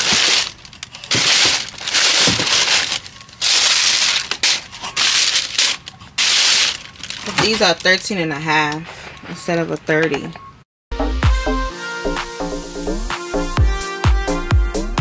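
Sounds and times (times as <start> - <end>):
packaging crinkling: 0.0 - 8.2.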